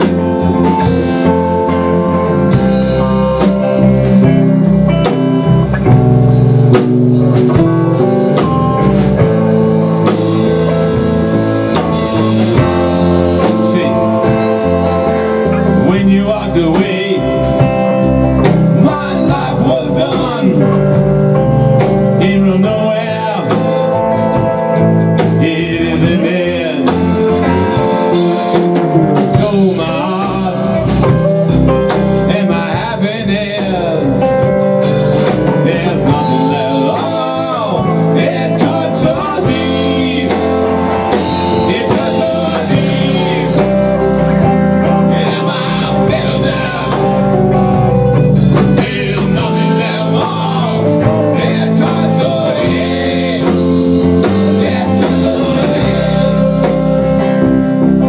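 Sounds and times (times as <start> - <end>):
drum kit: 0.0 - 58.0
electric bass: 0.0 - 58.0
electric guitar with bent notes: 0.0 - 58.0.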